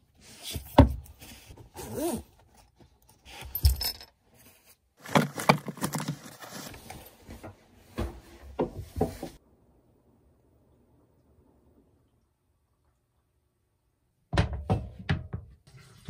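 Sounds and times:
small clinks and knocks: 3.3s - 4.2s.

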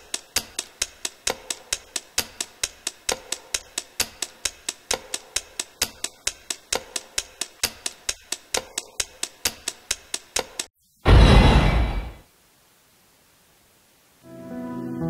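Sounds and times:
countdown timer ticking: 0.0s - 10.7s.

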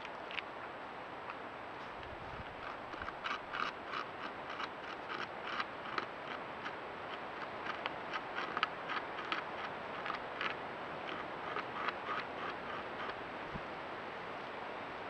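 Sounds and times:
beaver gnawing wood: 2.0s - 13.2s.

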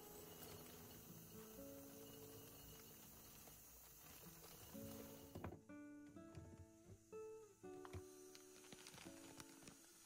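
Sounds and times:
faint background music: 0.0s - 10.0s.

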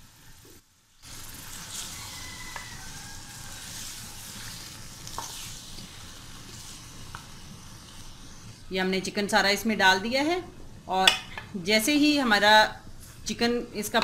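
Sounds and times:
chicken sizzling in oil: 0.0s - 8.7s.

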